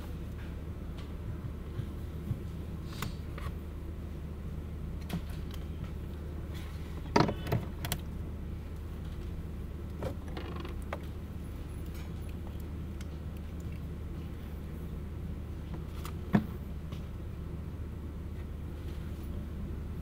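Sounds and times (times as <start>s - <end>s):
steady low hum: 0.0s - 20.0s
clicks and creaks at a desk: 5.0s - 8.1s, 9.9s - 11.1s.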